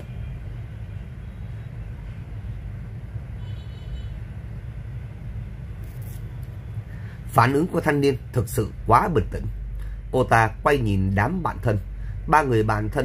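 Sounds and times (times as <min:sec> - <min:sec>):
low background rumble: 0:04.2 - 0:13.0.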